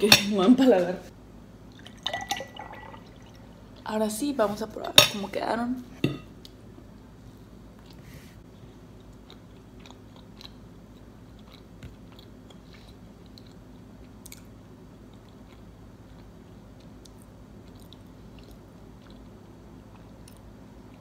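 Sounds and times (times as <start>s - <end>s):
steady low hum: 0.0s - 21.0s
person chewing: 8.6s - 21.0s.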